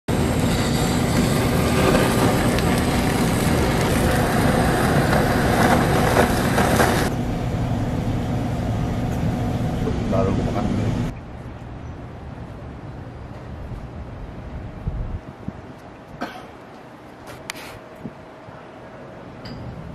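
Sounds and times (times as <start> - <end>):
kitchen torch hissing: 0.1 - 7.1
low steady hum: 0.1 - 15.5.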